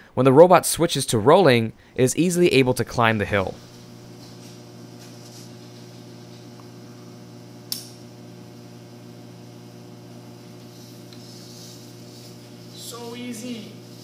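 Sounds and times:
electrical hum: 0.0 - 14.0
sharp click: 7.7 - 8.0.

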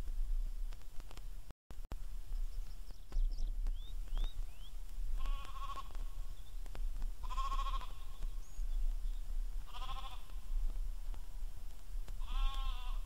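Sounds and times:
bird chirps: 2.3 - 6.7, 7.6 - 9.3
sheep bleating: 5.2 - 6.2, 7.2 - 8.2, 9.7 - 10.4, 12.2 - 13.0.

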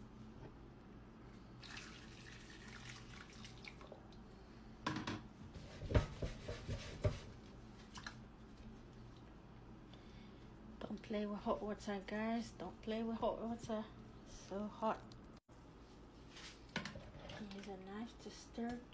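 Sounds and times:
boiling water pouring: 1.4 - 4.2.

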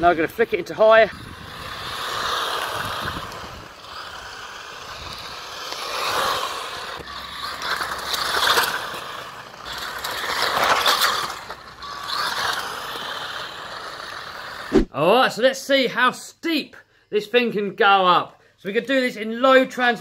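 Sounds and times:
gritty crackle: 0.0 - 14.7
electric motor whining: 0.0 - 14.8.

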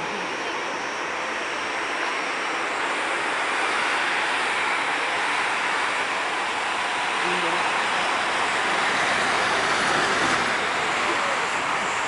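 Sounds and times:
distant jet engines rushing: 0.0 - 12.0.

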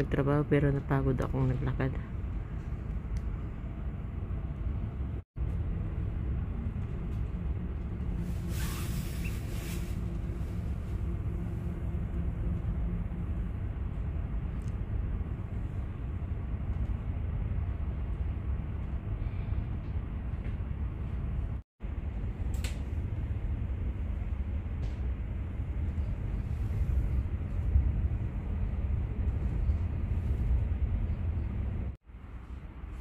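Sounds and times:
faint hum: 0.0 - 33.0
train rumbling inside carriage: 0.0 - 33.0
brief hiss: 8.4 - 10.1.

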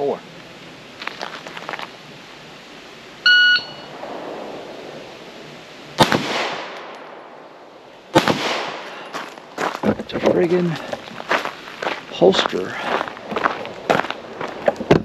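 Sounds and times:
shot timer beep: 3.3 - 3.9
pistol shots with echo: 6.0 - 7.3, 8.1 - 9.0.

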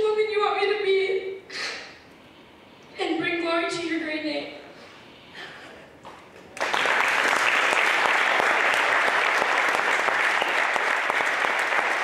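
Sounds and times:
congregation clapping: 6.1 - 12.0.

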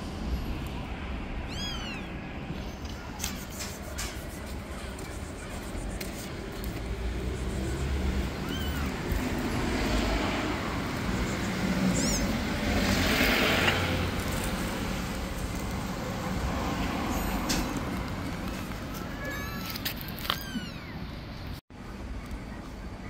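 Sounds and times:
street traffic rumble: 0.0 - 23.0
kitten mewing: 1.5 - 2.2, 8.2 - 9.4, 11.9 - 12.4, 19.0 - 21.0
vehicle passing: 3.6 - 19.1.

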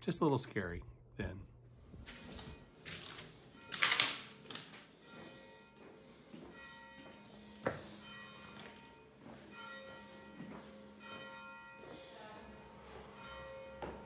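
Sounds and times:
bell-like chimes ringing: 3.4 - 4.0, 4.8 - 14.0.

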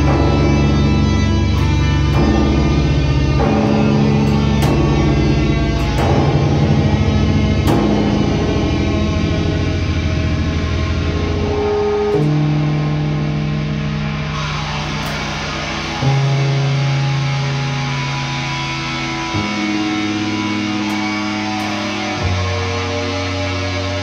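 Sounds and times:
electric bass and guitar music: 0.0 - 24.0.

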